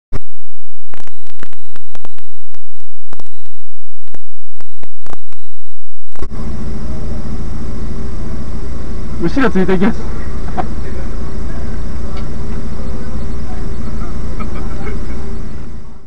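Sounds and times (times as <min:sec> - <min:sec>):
sharp electronic clicks: 0:00.2 - 0:05.5
electronic humming tones: 0:00.2 - 0:16.0
car engine idling: 0:06.3 - 0:16.0.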